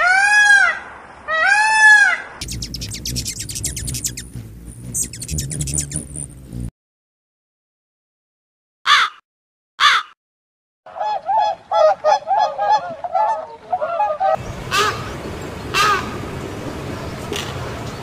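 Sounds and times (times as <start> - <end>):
waterfowl calls: 10.9 - 16.3.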